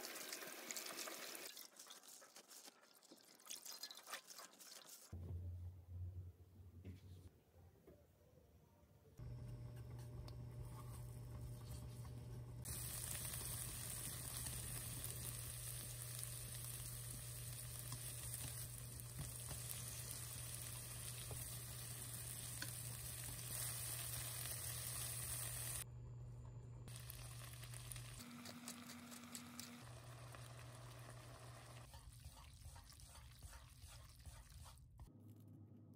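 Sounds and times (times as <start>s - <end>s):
food sizzling in oil: 12.6s - 25.8s, 26.9s - 34.4s
chopsticks stirring: 31.9s - 34.9s.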